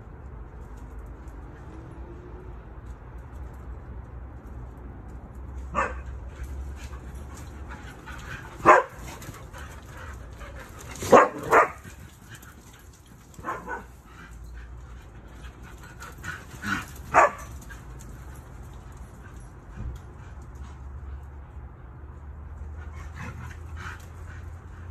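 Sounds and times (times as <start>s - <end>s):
dogs barking: 5.7s - 14.2s, 16.0s - 17.9s.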